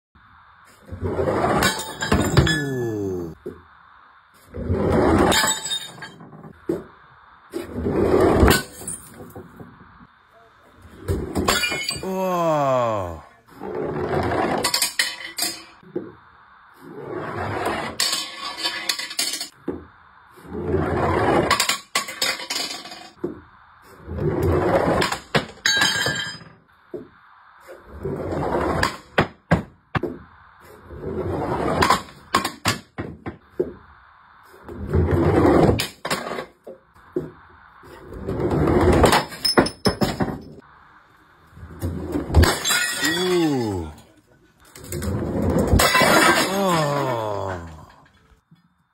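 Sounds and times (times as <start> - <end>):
heavy balls rolling down wooden ramp: 0.6 - 2.6, 4.3 - 10.2, 13.5 - 34.0, 34.6 - 40.6, 41.5 - 42.9, 44.6 - 48.0.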